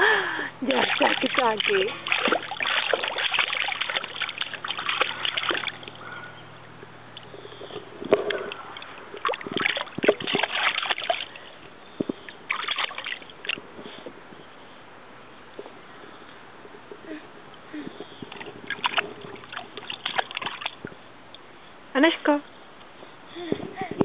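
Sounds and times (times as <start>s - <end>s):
water splashing in baby bathtub: 0.6s - 6.0s, 8.3s - 11.4s, 12.5s - 13.6s, 18.3s - 20.9s.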